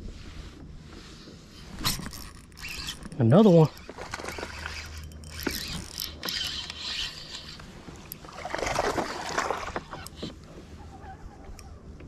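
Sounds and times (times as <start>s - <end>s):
scraping handling noise on kayak: 0.3s - 11.8s
light water splashes: 7.9s - 10.3s.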